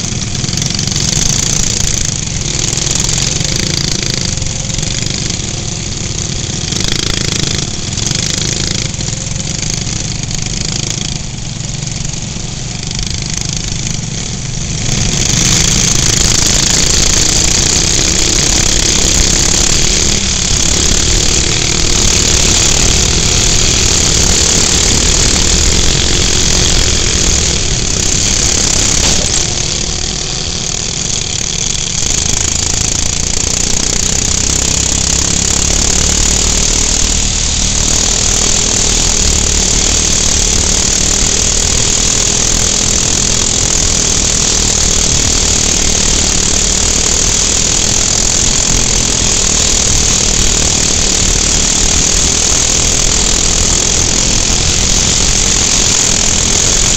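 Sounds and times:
kart engine running hard: 0:00.0 - 0:56.9.

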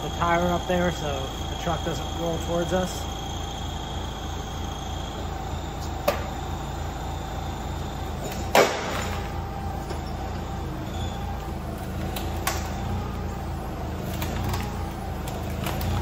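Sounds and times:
forklift running: 0:00.0 - 0:16.0
loud metallic clank: 0:08.2 - 0:09.3.

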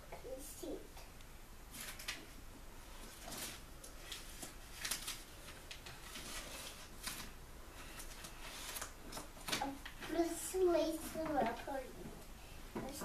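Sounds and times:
book pages rustling: 0:02.9 - 0:11.9.

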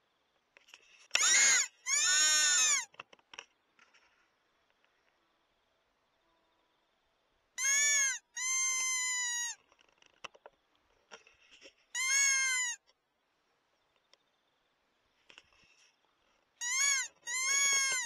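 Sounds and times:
fox whistle squealing calls: 0:01.2 - 0:02.9, 0:07.6 - 0:09.6, 0:12.0 - 0:12.8, 0:16.6 - 0:18.0.

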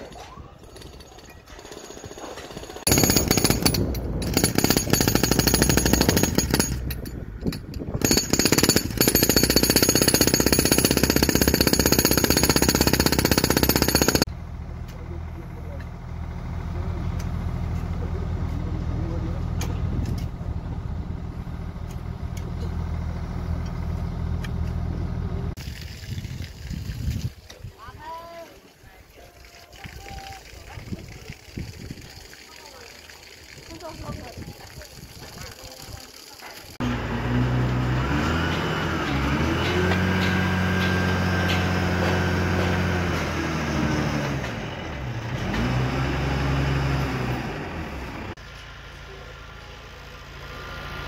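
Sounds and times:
diesel engine running hard: 0:14.2 - 0:25.6, 0:36.8 - 0:51.0.

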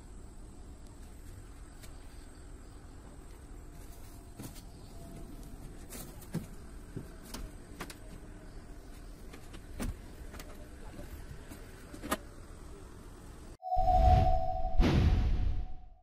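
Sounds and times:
outdoor background noise: 0:00.0 - 0:15.8.

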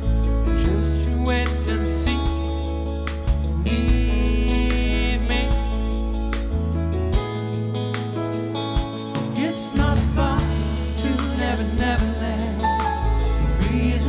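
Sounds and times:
person singing: 0:00.0 - 0:06.2, 0:09.2 - 0:14.0
soft-rock band playing ballad: 0:00.0 - 0:14.0.

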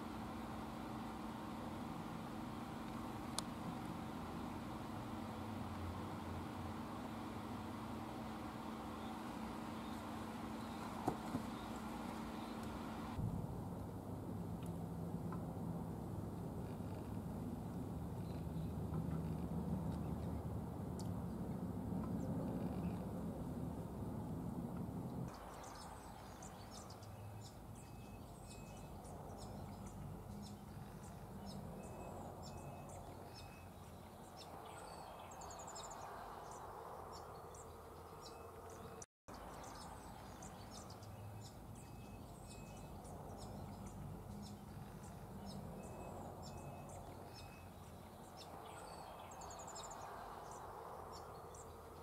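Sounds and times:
steady outdoor hiss: 0:00.0 - 0:52.0
small birds chirping: 0:06.1 - 0:13.2, 0:22.0 - 0:23.3, 0:25.3 - 0:52.0.

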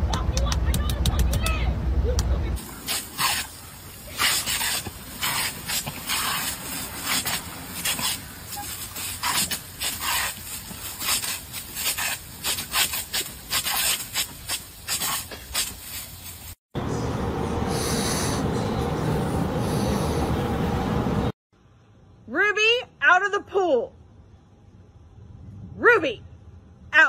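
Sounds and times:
dogs biting and lapping water: 0:02.6 - 0:16.0
sprinkler water jet hissing: 0:02.6 - 0:16.6.

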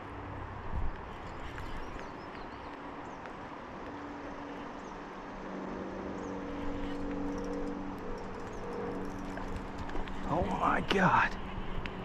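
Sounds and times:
low motor-like hum: 0:03.8 - 0:12.0.

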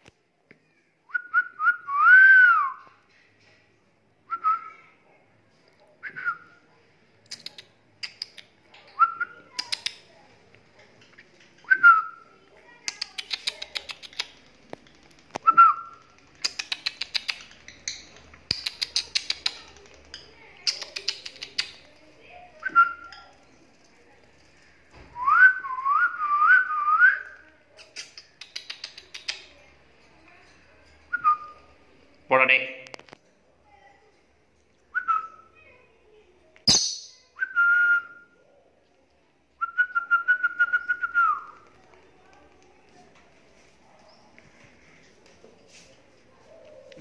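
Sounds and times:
lovebird chirping: 0:36.7 - 0:37.4.

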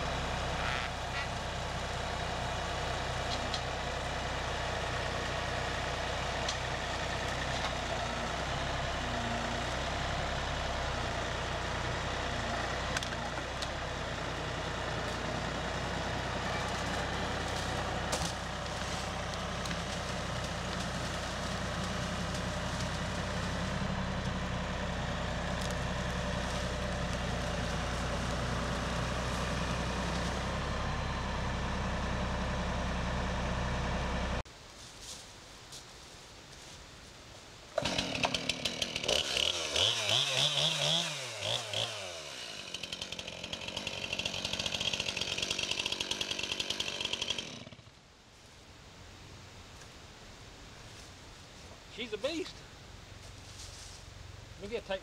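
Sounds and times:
tractor diesel engine running: 0:00.0 - 0:34.6, 0:37.7 - 0:55.0.

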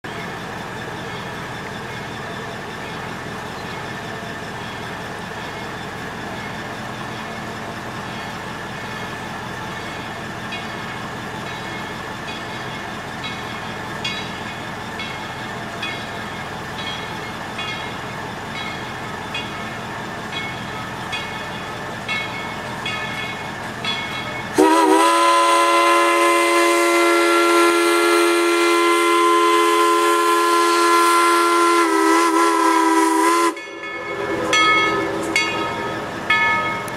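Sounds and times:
steam locomotive chuffing: 0:00.0 - 0:36.9
steam whistle chord: 0:24.5 - 0:36.9.

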